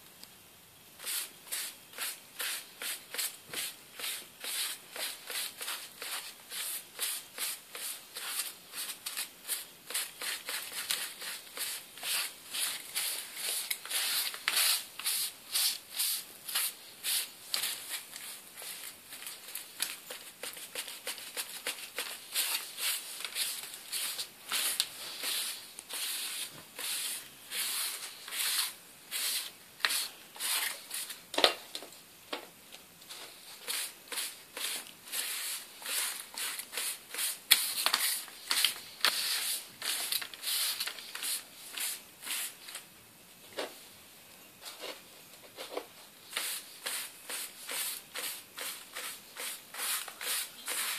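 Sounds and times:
sponge scrubbing on paper: 20.1s - 31.1s, 46.3s - 50.9s.

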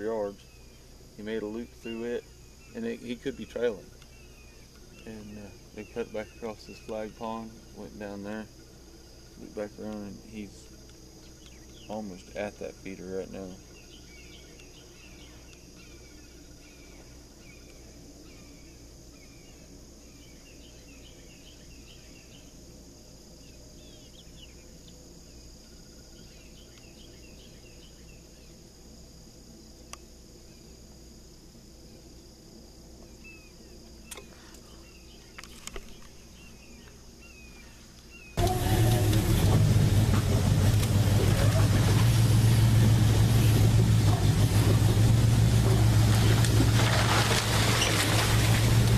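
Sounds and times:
small birds chirping: 0.0s - 22.6s, 23.2s - 28.6s, 33.0s - 46.4s
insect chorus trilling: 0.0s - 48.9s.

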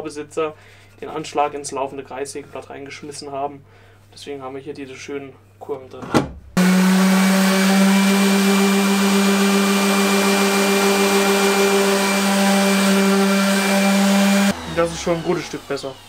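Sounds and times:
orbital sander on metal: 6.6s - 16.0s.

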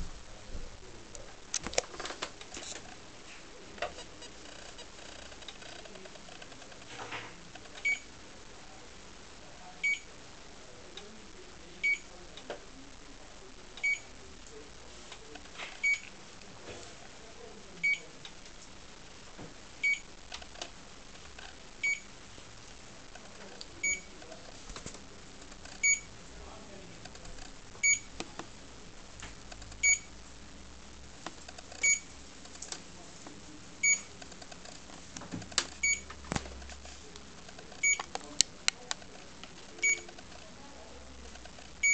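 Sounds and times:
high short beeps: 31.8s - 32.0s.

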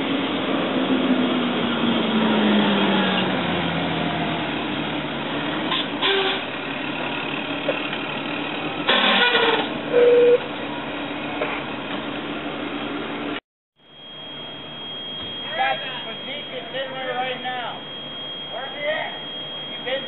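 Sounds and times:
truck engine running: 0.0s - 20.0s
siren winding down: 0.6s - 11.0s, 13.8s - 20.0s
brief loud tone: 5.7s - 6.6s, 8.9s - 10.5s, 13.8s - 20.0s.

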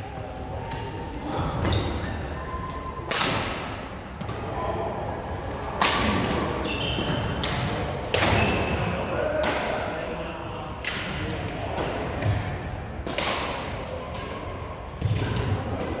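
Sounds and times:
rackets striking shuttlecock: 13.0s - 16.0s.

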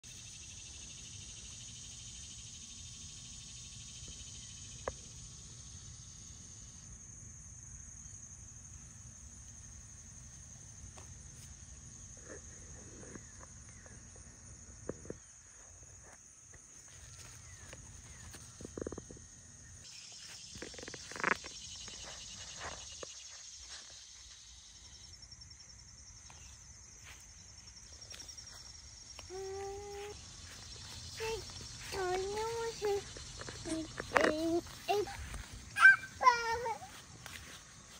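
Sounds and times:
insects droning: 0.0s - 37.9s.

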